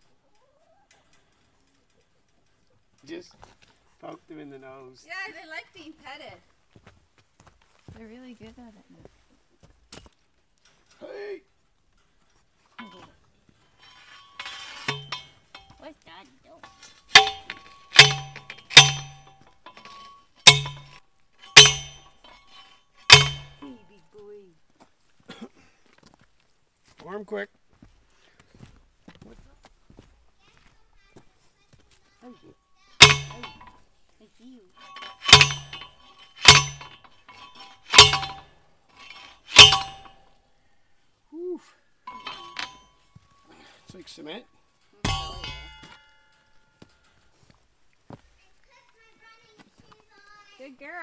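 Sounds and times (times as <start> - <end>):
post driver clanging on metal post: 12.8 - 13.2, 13.8 - 15.9, 16.6 - 23.9, 33.0 - 33.8, 34.8 - 40.3, 42.1 - 43.9, 45.0 - 47.2.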